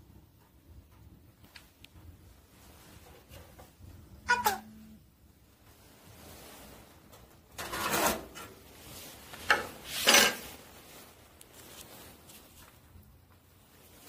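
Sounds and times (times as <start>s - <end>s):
metal stove door scraping: 7.6s - 8.6s, 9.4s - 10.6s.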